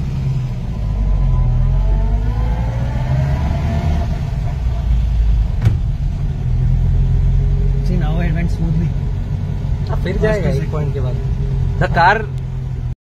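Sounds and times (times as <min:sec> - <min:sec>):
car engine accelerating: 0:00.0 - 0:13.0
sharp knock: 0:05.6 - 0:06.0.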